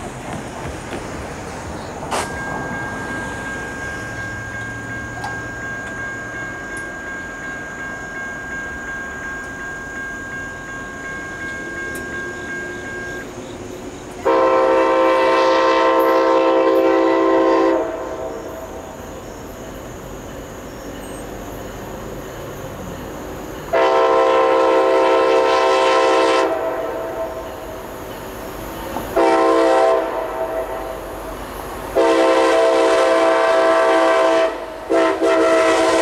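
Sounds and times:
faint rumble of oncoming train: 0:00.0 - 0:36.0
thin steady high tone: 0:01.8 - 0:14.2, 0:18.0 - 0:23.8
train horn blast: 0:14.2 - 0:18.6, 0:23.7 - 0:27.4, 0:29.2 - 0:31.0, 0:31.9 - 0:36.0.

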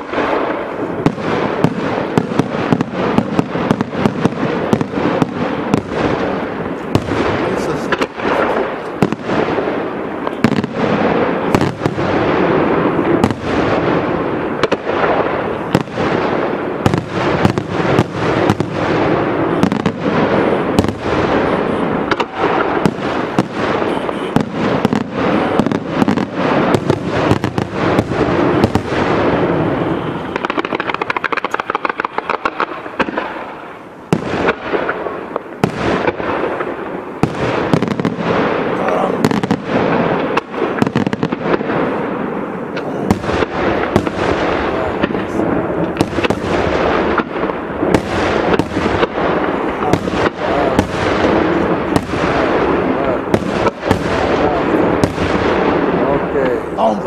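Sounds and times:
firework shells bursting: 0:00.0 - 0:33.6
fireworks crackling: 0:00.0 - 0:57.0.

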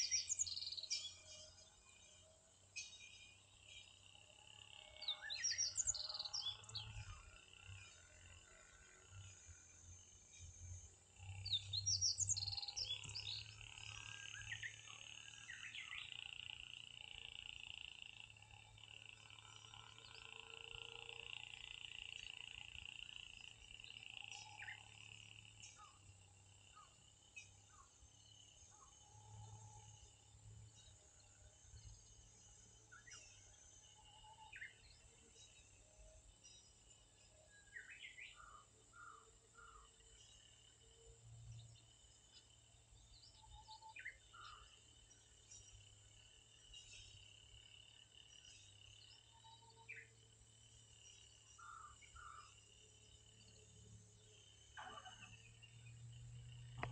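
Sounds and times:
bird chirping: 0:00.0 - 0:56.9
faint bird calls: 0:54.7 - 0:55.8.

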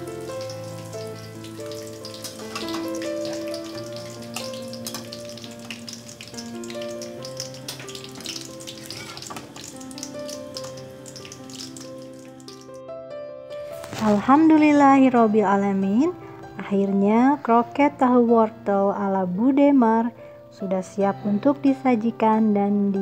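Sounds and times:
hot oil sizzling and crackling: 0:00.0 - 0:12.8, 0:13.6 - 0:14.5
background music: 0:00.0 - 0:23.0.

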